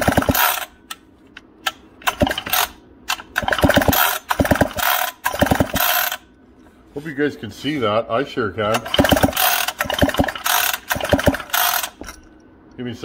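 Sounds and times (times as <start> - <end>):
chainsaw recoil starter pulls: 0.0 - 0.8, 2.0 - 6.2, 8.7 - 12.2.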